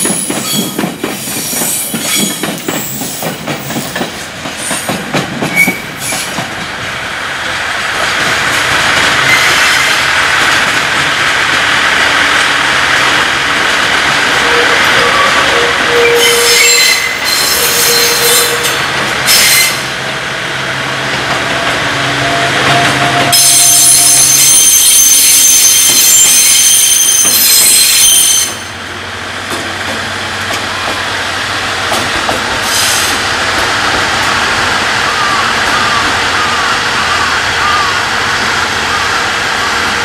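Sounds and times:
train wheels squealing on rails: 0.0s - 6.5s, 8.5s - 10.2s, 14.4s - 20.1s, 21.5s - 28.9s, 32.4s - 40.0s.

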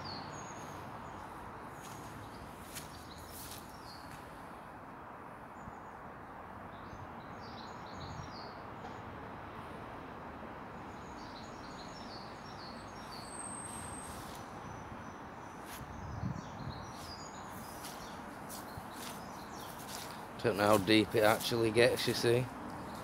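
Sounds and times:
small birds chirping: 0.0s - 4.4s, 10.8s - 23.0s
outdoor background hiss: 0.0s - 23.0s.

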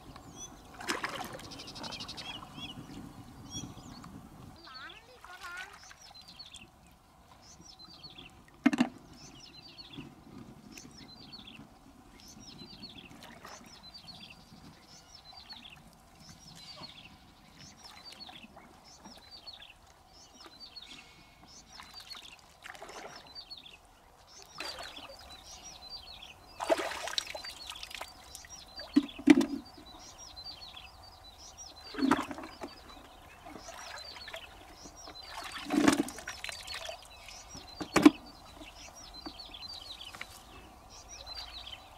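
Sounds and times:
shallow water splashing: 0.6s - 2.6s, 21.6s - 23.6s, 24.4s - 30.0s, 31.6s - 40.5s
shells knocking on plastic bucket: 8.7s - 9.0s
bird chirping: 10.7s - 22.4s, 23.1s - 41.9s.

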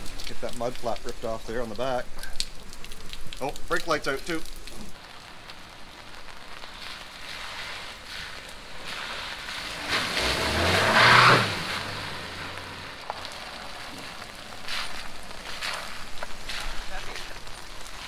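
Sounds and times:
tyres hissing through water: 0.0s - 18.0s
car driving past: 8.9s - 13.9s.

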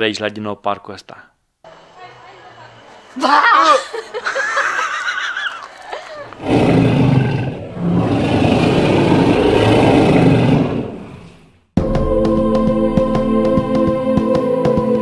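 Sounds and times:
high wavering cry: 3.1s - 6.4s
deep dinosaur roar: 6.2s - 11.6s.

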